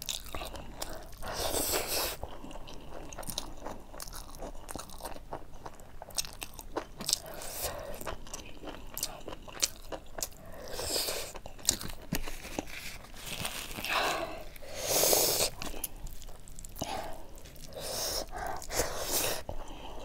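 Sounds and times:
chewing food: 0:00.0 - 0:20.0
breaths: 0:07.2 - 0:08.1, 0:13.8 - 0:16.0, 0:16.8 - 0:20.0.

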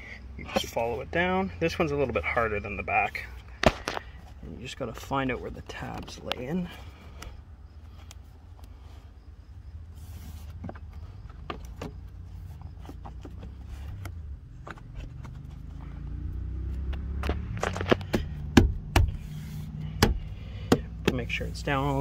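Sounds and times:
loud plastic snaps: 0:03.6 - 0:04.1.

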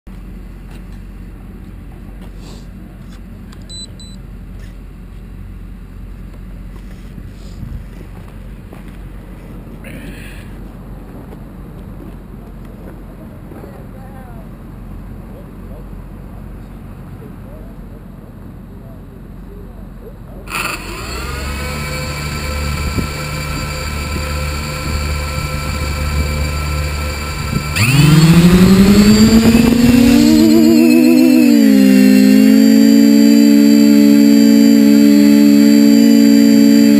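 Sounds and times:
drone motors whining: 0:20.5 - 0:36.9
steady low rumble: 0:21.6 - 0:36.9
high-pitched electronic beeps: 0:24.6 - 0:36.9.

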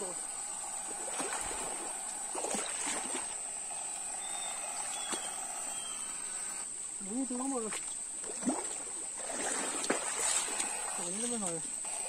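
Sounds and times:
splashes from wading: 0:00.0 - 0:05.6, 0:07.6 - 0:11.7
high-pitched insect drone: 0:00.0 - 0:12.0
stream water running: 0:00.0 - 0:12.0.

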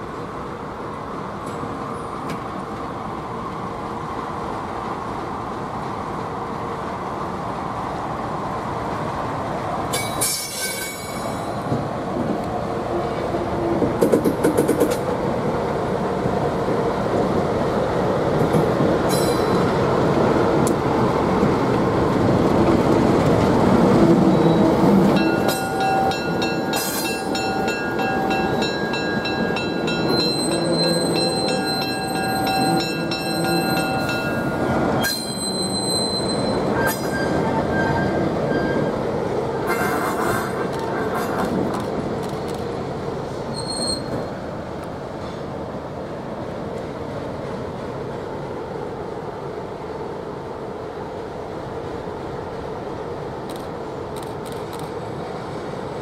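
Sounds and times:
diesel train rumbling past: 0:00.0 - 0:56.0
steel wheel squeal: 0:24.3 - 0:38.9, 0:43.5 - 0:44.3.

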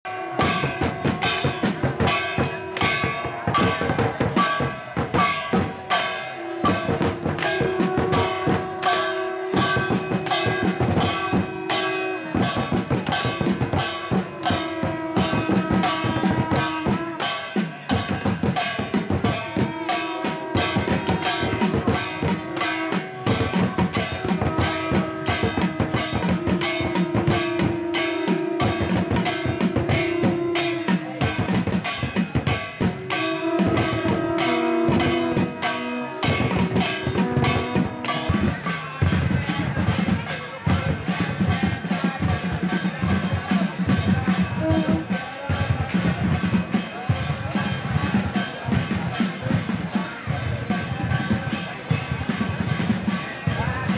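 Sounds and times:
quick steady drum beat: 0:00.1 - 0:53.9
long held notes: 0:19.4 - 0:39.0.

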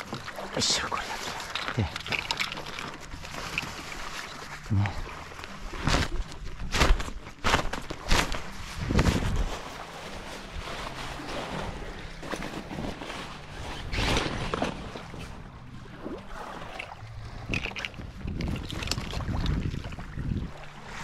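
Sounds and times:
wind buffeting microphone: 0:08.7 - 0:09.6, 0:17.1 - 0:20.6.

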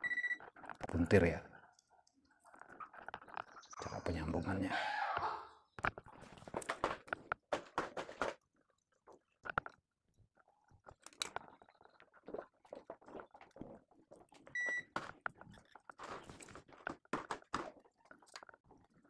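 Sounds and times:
clicks and rustles of wires: 0:00.3 - 0:03.7, 0:05.8 - 0:09.9, 0:10.8 - 0:11.9, 0:14.1 - 0:19.0.

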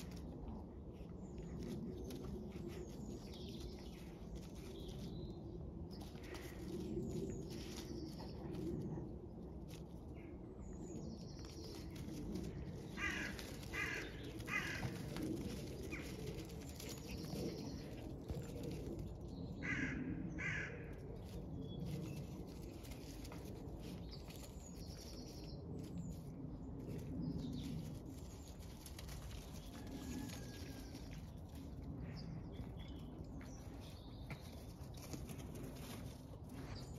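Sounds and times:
crows cawing: 0:13.0 - 0:14.9, 0:19.6 - 0:20.8.

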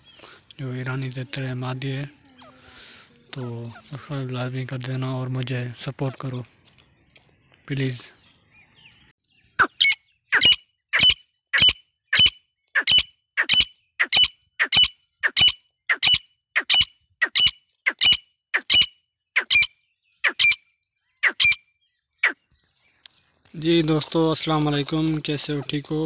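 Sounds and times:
partridge squawking: 0:09.6 - 0:20.6, 0:21.2 - 0:21.6.

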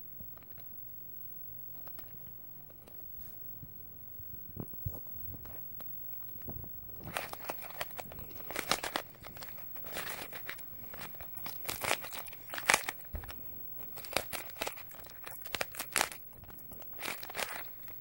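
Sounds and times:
rubik's cube clicking and scraping: 0:07.0 - 0:18.0.

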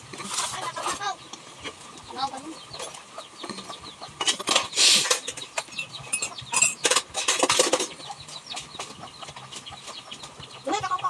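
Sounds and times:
chickens clucking: 0:00.0 - 0:11.0
loud scrapes and clatters: 0:06.1 - 0:08.1.

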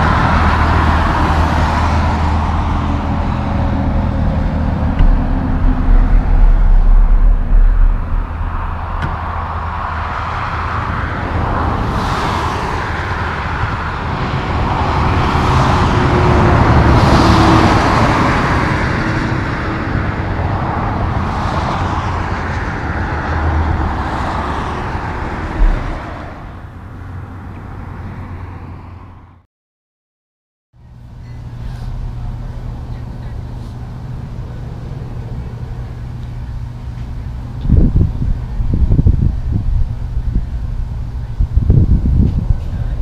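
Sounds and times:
heavy low rumble: 0:00.0 - 0:28.0, 0:30.9 - 0:43.0
highway traffic rumble: 0:00.0 - 0:29.4, 0:30.8 - 0:43.0.

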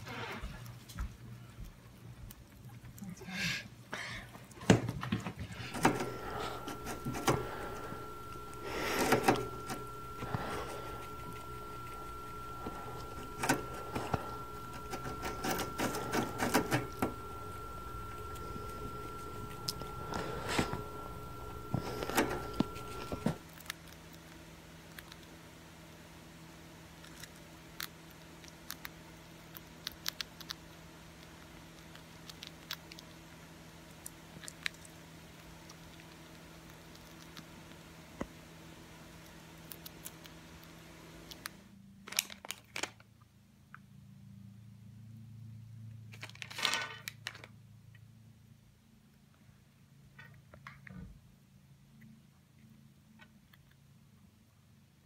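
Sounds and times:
low steady hum: 0:00.2 - 0:42.1
hamster nibbling crunches: 0:00.4 - 0:03.4, 0:04.3 - 0:26.0, 0:26.8 - 0:42.9
faint steady high tone: 0:05.7 - 0:23.4.

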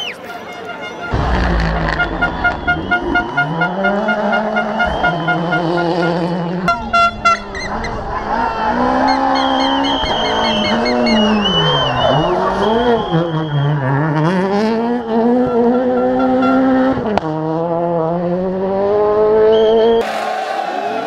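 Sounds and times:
rally car engines revving: 0:00.9 - 0:21.0
sharp burst of noise: 0:01.1 - 0:03.8.

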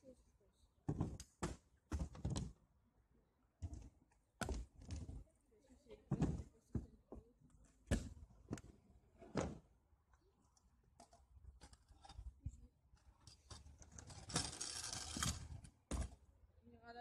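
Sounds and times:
scooter wheels rolling on asphalt: 0:13.3 - 0:16.2.

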